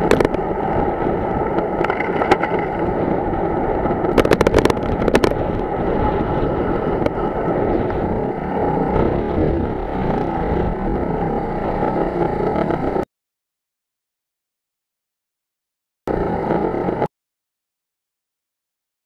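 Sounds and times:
wind noise on microphone: 0:00.0 - 0:13.0.

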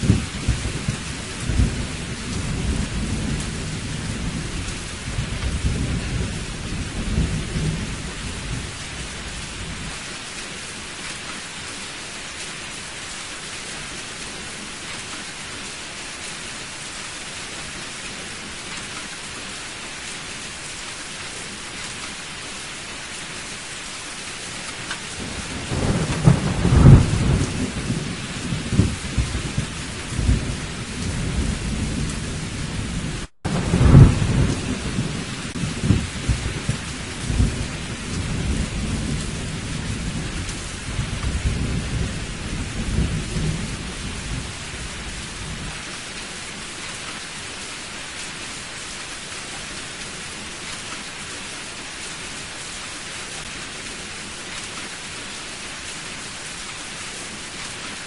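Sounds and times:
heavy rain: 0:00.0 - 0:58.0
thunder rolling: 0:25.2 - 0:45.8.

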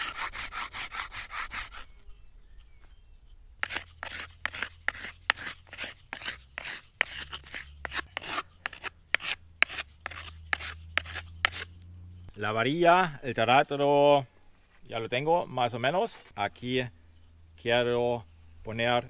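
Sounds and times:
wooden spindle rasping on rock: 0:00.0 - 0:02.0, 0:03.6 - 0:12.3.

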